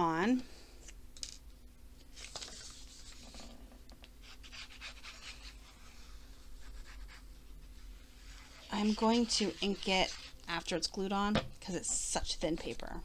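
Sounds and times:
paper rustling: 2.1s - 3.5s.

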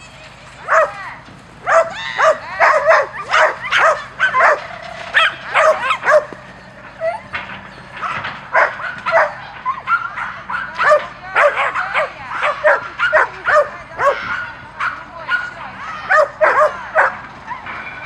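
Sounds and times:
small dog yapping: 1.6s - 6.4s, 8.0s - 17.7s.

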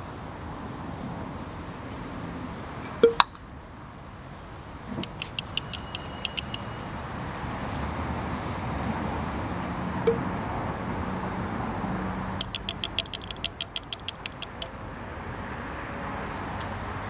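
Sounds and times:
low outdoor background noise: 0.0s - 17.0s
glass vials clinking: 12.4s - 14.7s.

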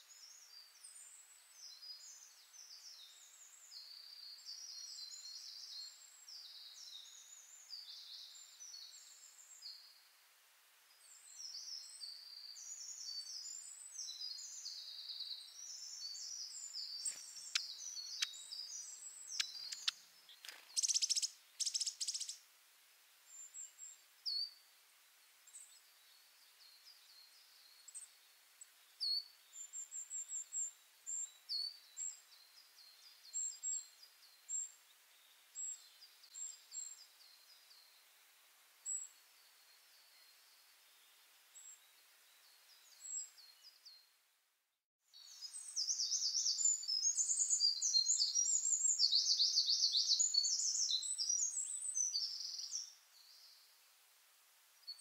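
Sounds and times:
small birds chirping: 0.0s - 10.1s, 10.8s - 22.5s, 23.2s - 44.2s, 45.0s - 55.0s
fast ticks: 19.4s - 20.6s.

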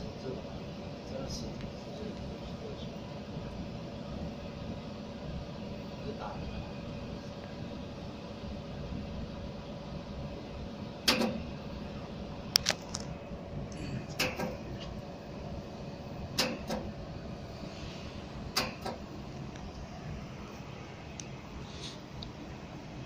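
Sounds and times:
machine humming: 0.0s - 23.0s
laser welder snapping clicks: 16.4s - 16.8s, 18.6s - 19.0s.

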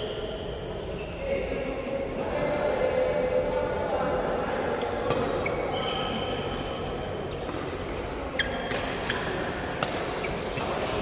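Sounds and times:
shoes squeaking on court floor: 4.8s - 11.0s
rackets striking shuttlecock: 8.6s - 11.0s.

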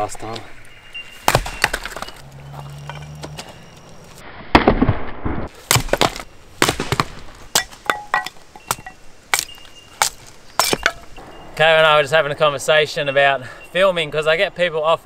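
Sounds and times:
axe splitting firewood: 1.2s - 3.7s, 4.5s - 11.2s.

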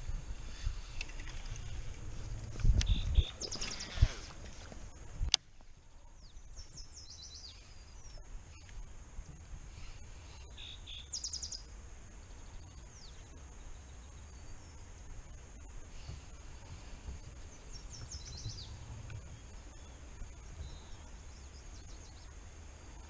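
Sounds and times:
songbird chirping: 0.0s - 23.0s
steady low rumble: 0.0s - 23.0s.

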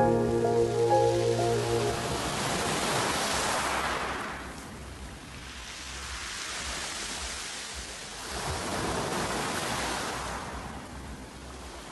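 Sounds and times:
waves washing over pebbles: 2.6s - 11.9s.

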